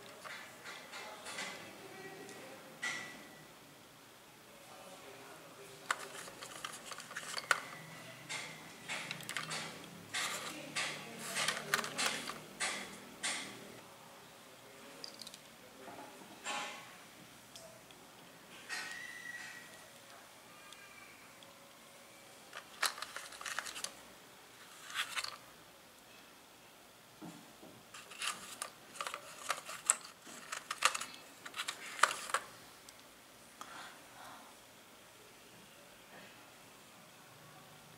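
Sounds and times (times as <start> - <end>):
porcelain pieces clicking: 5.9 - 12.8, 28.0 - 32.5
rustling scrapes in plastic tray: 24.6 - 25.4, 27.9 - 32.5.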